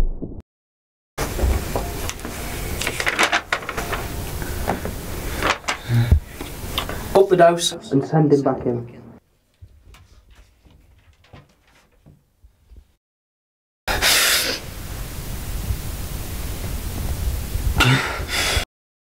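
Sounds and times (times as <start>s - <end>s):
loud static hiss with rumble: 1.2s - 7.8s, 13.9s - 18.6s
faint clicks and rustles: 9.4s - 12.8s.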